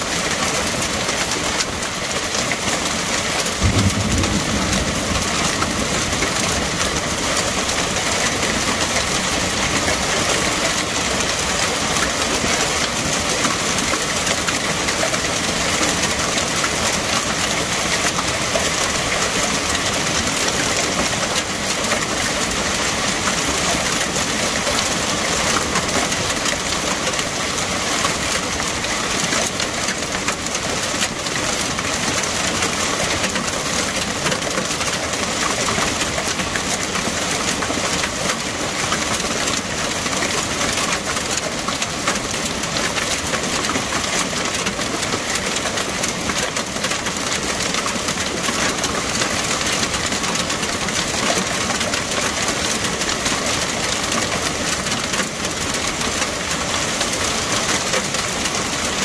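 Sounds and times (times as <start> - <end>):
heavy rain and hail: 0.0 - 59.0
low rumble: 3.6 - 7.9.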